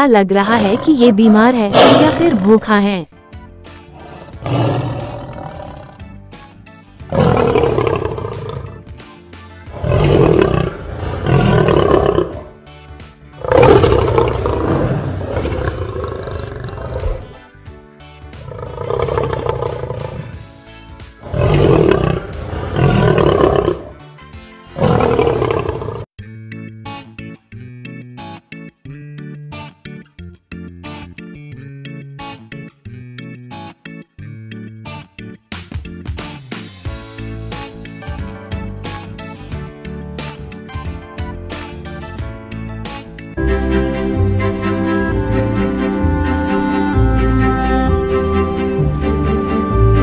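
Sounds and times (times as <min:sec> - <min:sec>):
lion roaring: 0:00.4 - 0:02.6, 0:04.0 - 0:06.0, 0:07.1 - 0:08.8, 0:09.7 - 0:12.5, 0:13.4 - 0:17.4, 0:18.4 - 0:20.4, 0:21.2 - 0:24.0, 0:24.8 - 0:26.1.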